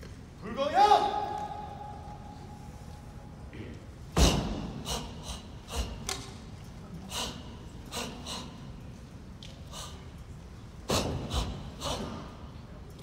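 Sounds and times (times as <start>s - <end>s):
sharp hissing exhalations: 4.2s - 6.0s, 7.1s - 8.7s, 10.9s - 12.3s.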